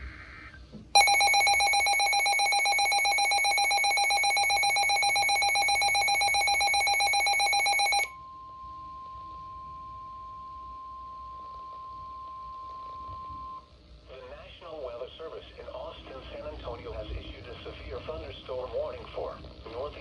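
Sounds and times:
rapidly pulsing electronic beeping: 0:01.0 - 0:08.1
steady alarm tone: 0:01.0 - 0:08.2.

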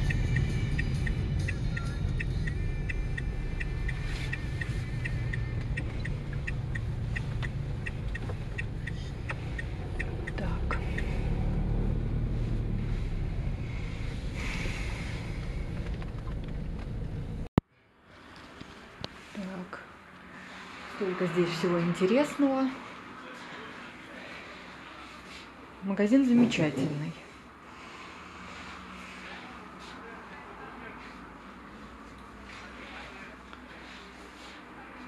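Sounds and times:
car engine and road rumble: 0:00.0 - 0:25.8.

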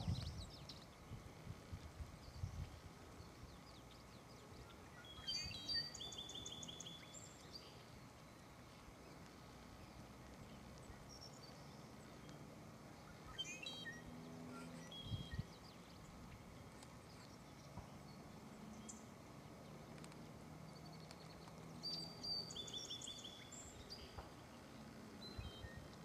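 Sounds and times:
birds trilling and chirping: 0:00.0 - 0:26.0.

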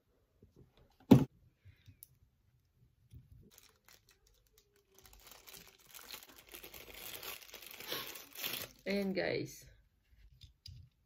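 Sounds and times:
loud knock near microphone: 0:01.1 - 0:01.3
plastic bag crinkling: 0:03.3 - 0:09.2.

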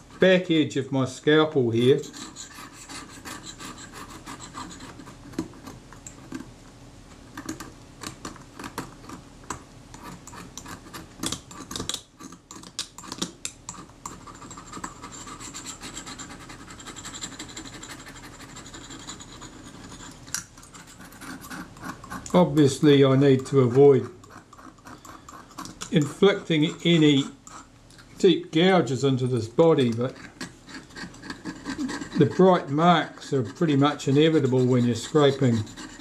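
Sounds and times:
blade scraping metal: 0:01.6 - 0:05.1, 0:14.1 - 0:36.0.

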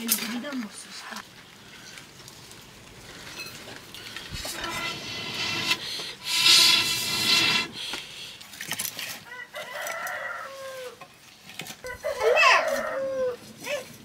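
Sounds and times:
breath blown through metal pipe: 0:04.0 - 0:08.4
rooster crowing: 0:09.2 - 0:11.0, 0:11.8 - 0:13.5.

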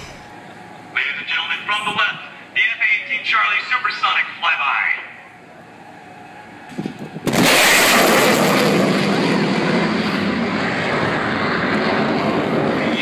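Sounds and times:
sonic boom: 0:00.0 - 0:00.3
jet engines roaring overhead: 0:00.0 - 0:13.0.

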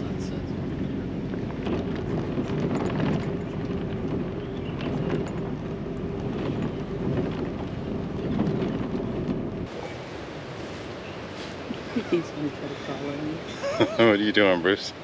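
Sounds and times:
wind noise: 0:00.0 - 0:14.0
road rumble: 0:00.0 - 0:15.0
small ticks and rattles: 0:01.4 - 0:09.6.

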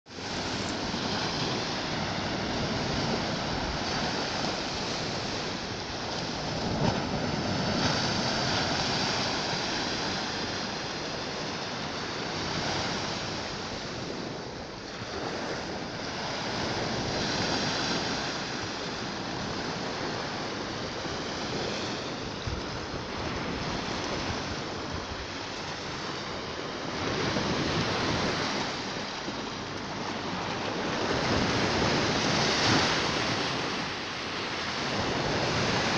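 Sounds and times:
waves washing on sandy shore: 0:00.1 - 0:35.9.

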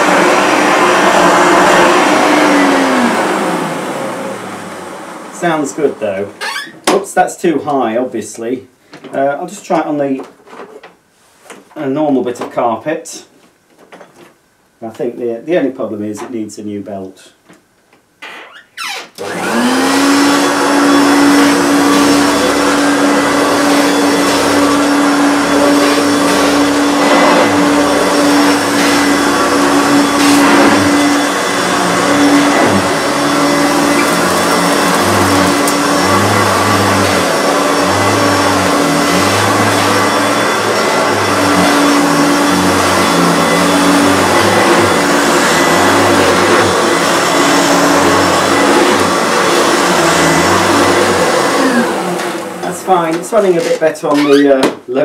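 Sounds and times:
vacuum cleaner running: 0:00.0 - 0:06.6, 0:19.2 - 0:54.4.

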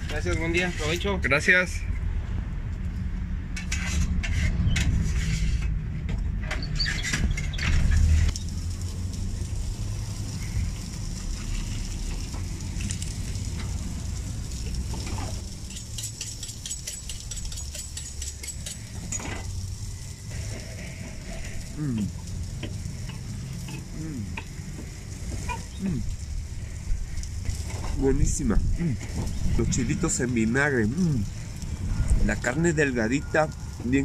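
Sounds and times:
griddle sizzling: 0:00.0 - 0:34.0.

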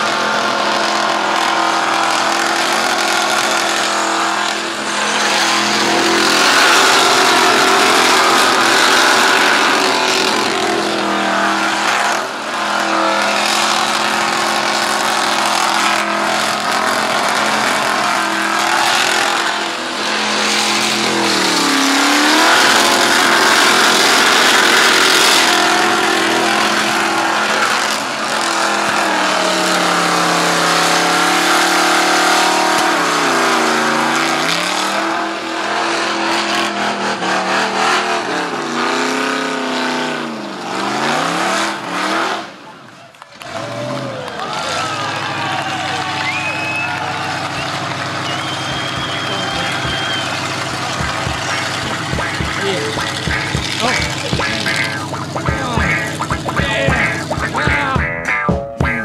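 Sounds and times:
car engine revving high: 0:00.0 - 0:42.7, 0:43.4 - 0:58.0
tyres screeching in burnout: 0:00.5 - 0:57.9.

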